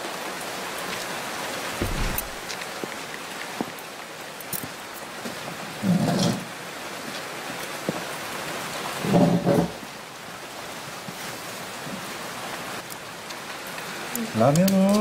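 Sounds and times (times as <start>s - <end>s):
film soundtrack hiss: 9.8s - 15.0s.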